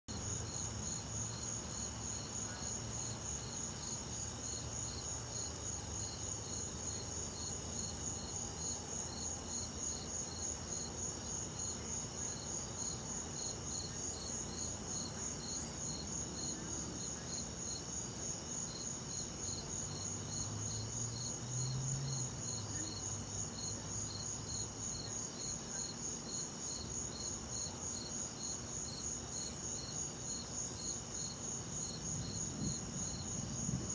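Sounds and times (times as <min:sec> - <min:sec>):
crickets chirping: 0:00.1 - 0:33.9
distant thunder rumble: 0:32.1 - 0:33.9.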